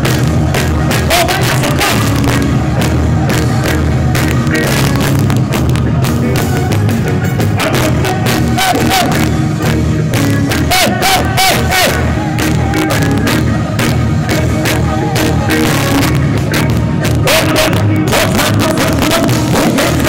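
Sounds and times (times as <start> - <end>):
crowd noise: 0.0 - 20.0
loud live reggae music: 0.0 - 20.0.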